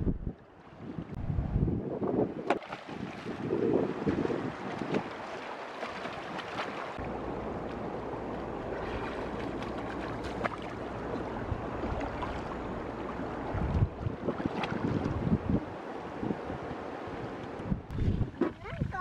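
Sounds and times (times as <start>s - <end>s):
wind rumble on microphone: 0.0s - 19.0s
flowing water rushing: 2.5s - 17.6s
fish splashing in water: 4.5s - 7.0s, 8.6s - 12.6s.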